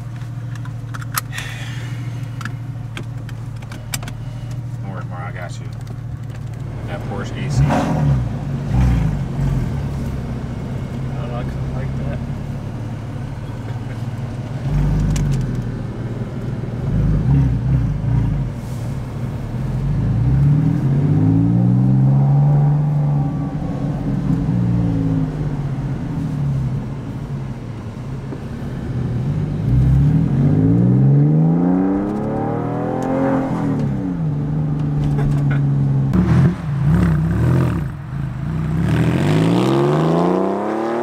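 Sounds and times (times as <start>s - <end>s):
car engine revving: 0.0s - 41.0s.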